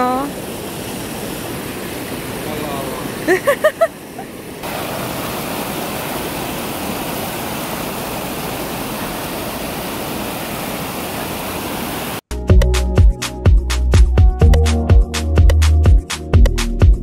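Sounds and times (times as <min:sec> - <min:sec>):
stream water rushing over rocks: 0:04.5 - 0:12.2
electronic music with a beat: 0:12.3 - 0:17.0.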